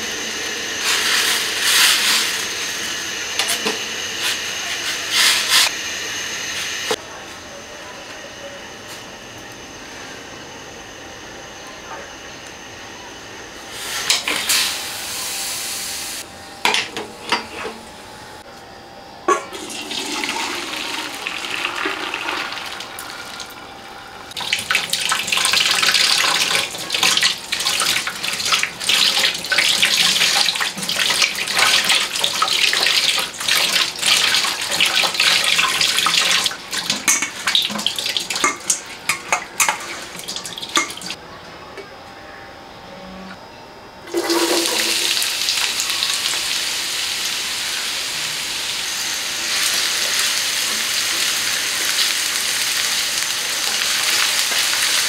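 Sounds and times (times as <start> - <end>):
tap water running and splashing: 19.6 - 23.6, 24.3 - 41.2, 44.1 - 47.9, 49.4 - 55.0.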